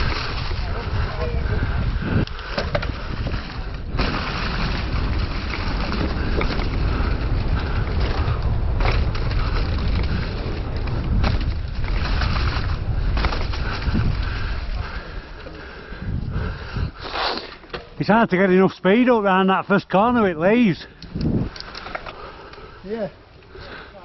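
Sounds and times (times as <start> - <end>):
wind rumble on microphone: 0.0 - 17.0, 20.0 - 21.8
tyres rolling through leaves: 0.0 - 17.6
bike knocks and rattles: 2.3 - 14.9.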